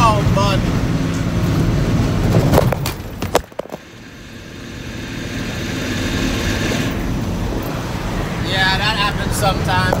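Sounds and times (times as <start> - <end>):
truck engine and road noise: 0.0 - 10.0.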